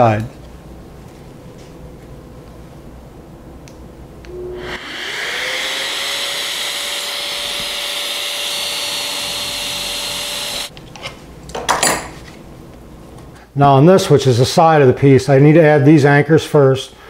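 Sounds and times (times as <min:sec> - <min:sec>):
drill boring into plywood: 0:04.3 - 0:10.7
dust extractor rush: 0:04.3 - 0:10.7.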